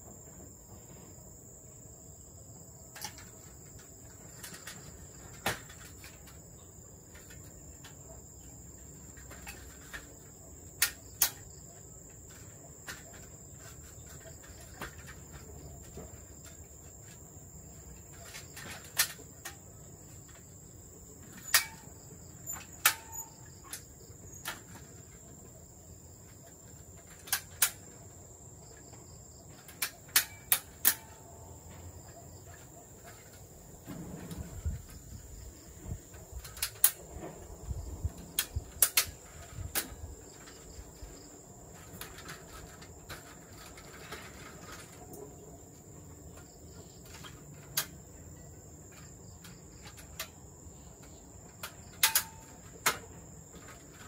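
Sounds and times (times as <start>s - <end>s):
crickets droning: 0.0s - 54.0s
sharp knocks and clicks: 48.9s - 54.0s.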